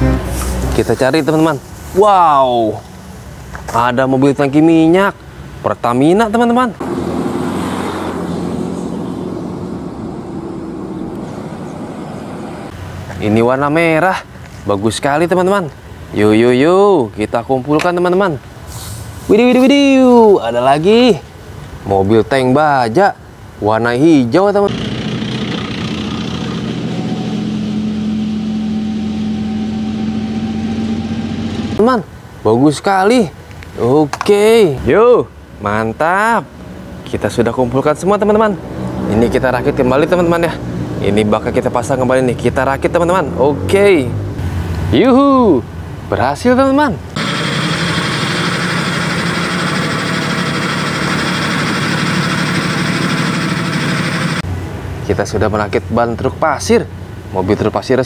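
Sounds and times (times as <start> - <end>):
tank engines droning: 24.7 - 32.3, 47.1 - 54.5.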